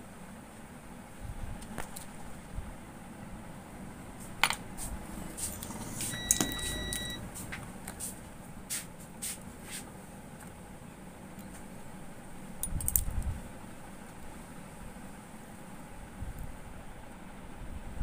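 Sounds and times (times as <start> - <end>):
electronic beep: 6.1 - 7.2
tools clicking and rattling: 12.6 - 13.2.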